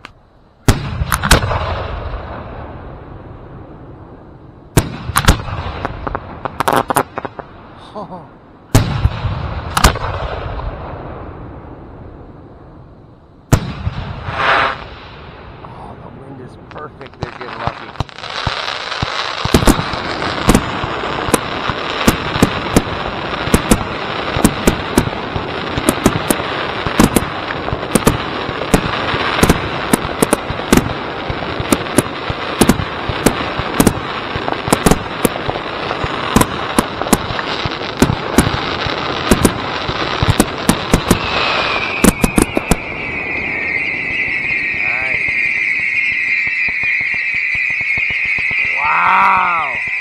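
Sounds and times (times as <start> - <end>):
fireworks shell reports: 7.8 - 9.1, 15.6 - 18.1, 40.3 - 50.0
high firework whistle: 14.1 - 15.0, 36.2 - 50.0
continuous crackling: 15.6 - 50.0.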